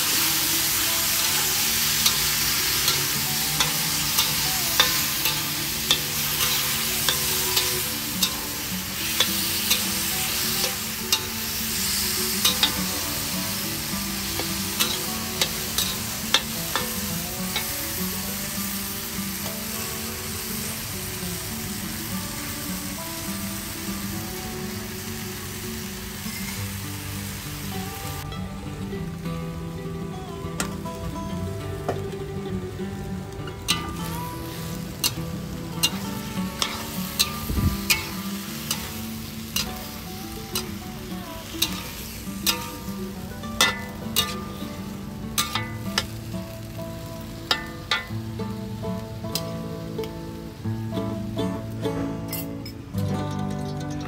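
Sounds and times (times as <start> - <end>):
food sizzling in wok: 0.0 - 54.0
metal spatula scraping a pan: 1.6 - 13.2, 35.8 - 39.9, 43.6 - 44.6.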